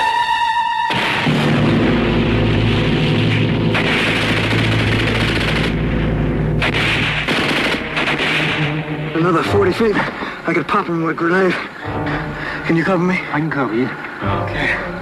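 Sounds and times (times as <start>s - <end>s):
machine gun firing bursts: 2.4s - 6.0s, 6.6s - 8.8s.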